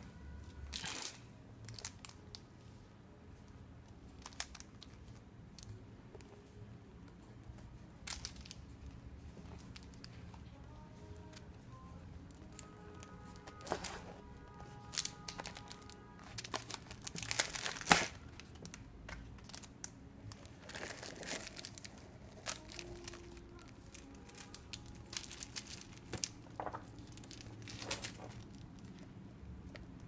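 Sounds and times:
plastic film crinkling: 12.3 - 29.1.

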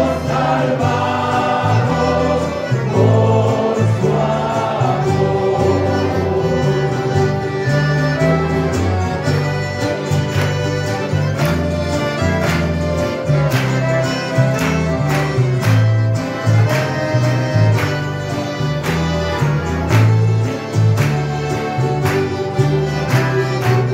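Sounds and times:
string band playing a hymn: 0.0 - 23.9
strummed guitars: 0.0 - 23.9.

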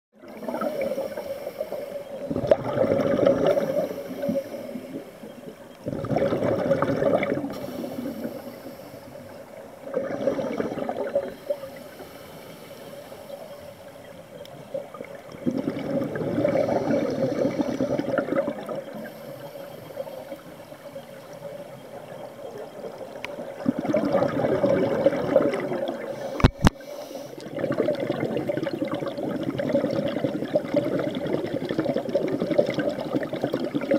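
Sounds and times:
underwater exhaled bubbles rushing: 0.2 - 33.9
diver inhaling: 0.4 - 2.2, 3.3 - 5.3, 7.5 - 9.5, 10.1 - 13.9, 16.3 - 18.1, 26.1 - 27.5.

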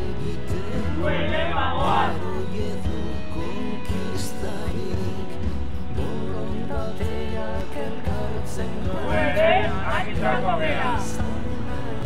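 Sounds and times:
song playing: 0.0 - 12.0.

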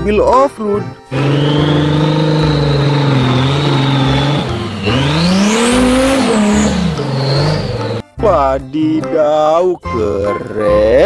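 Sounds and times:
high whine: 1.1 - 8.0
car engine revving: 1.1 - 8.1.

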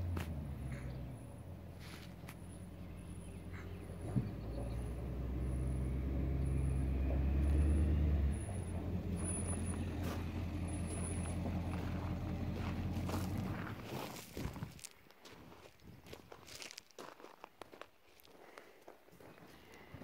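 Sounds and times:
truck engine humming: 0.0 - 14.1.

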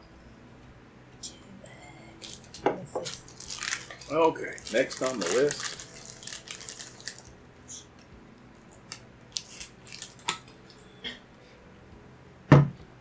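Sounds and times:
plastic packaging crackling: 2.2 - 7.4, 8.7 - 10.8.

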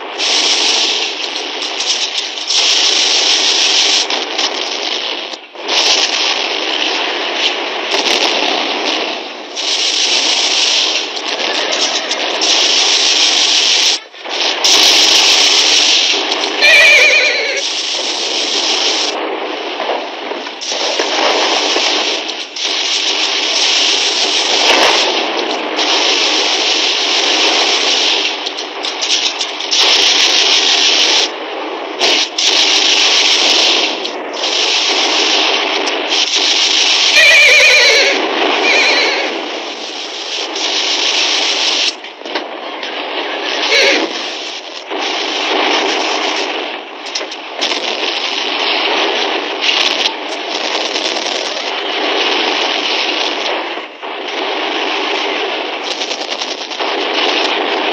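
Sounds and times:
continuous gunfire: 0.0 - 57.9
falling cries: 16.6 - 17.6
horses whinnying: 16.6 - 17.7, 37.2 - 39.3.

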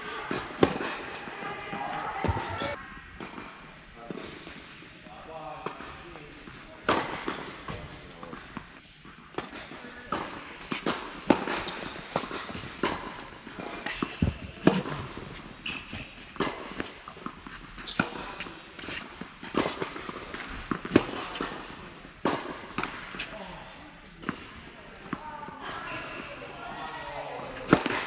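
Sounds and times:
tennis balls struck by racquets: 0.2 - 3.5, 5.6 - 23.3, 27.6 - 28.0
tennis balls bouncing: 0.3 - 3.4, 27.6 - 28.0.

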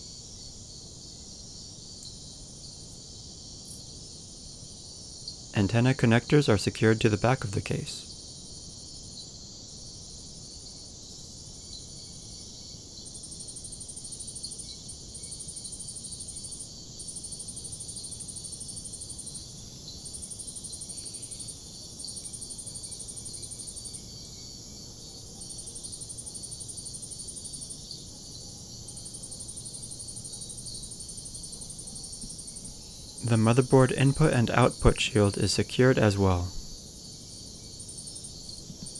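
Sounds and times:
faint steady hiss: 0.0 - 9.4, 29.0 - 38.9.

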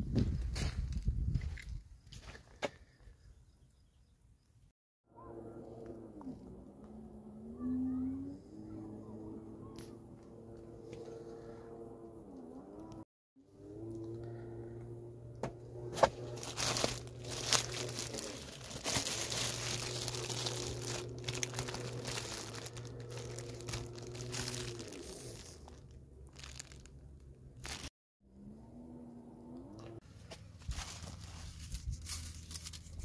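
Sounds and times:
plastic bags crinkling: 16.0 - 27.9, 30.6 - 32.9.

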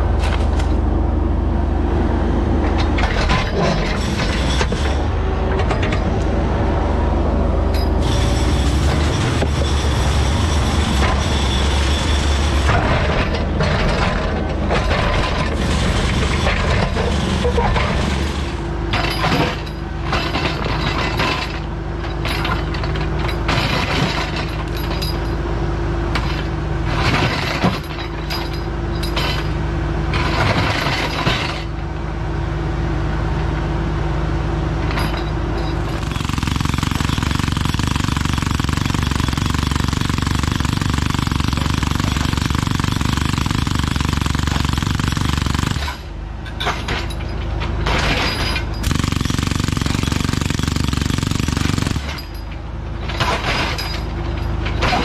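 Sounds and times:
excavator engine running: 0.0 - 55.0
hydraulic breaker hammering on rock: 35.9 - 46.2, 48.0 - 52.4.

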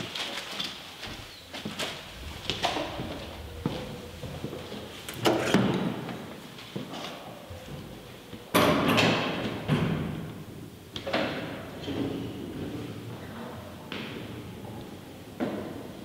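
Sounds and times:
heavy thuds with echo: 1.1 - 6.1.

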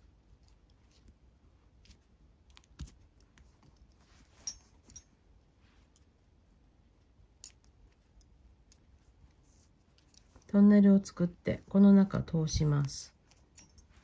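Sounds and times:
light clicks and taps: 7.4 - 10.6.

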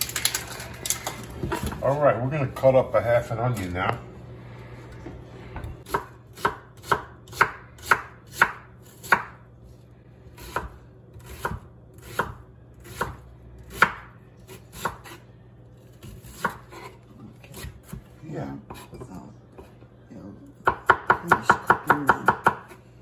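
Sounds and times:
knife chopping on wooden board: 5.9 - 9.4, 10.4 - 15.2, 16.0 - 18.1, 20.6 - 22.8.

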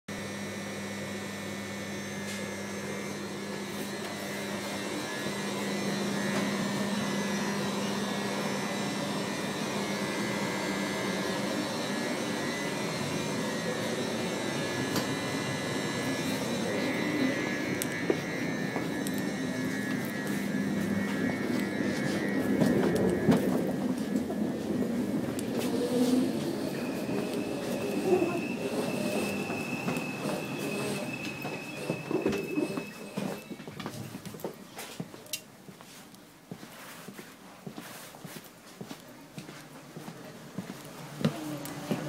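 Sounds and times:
train carriage hum and rumble: 3.2 - 33.5.

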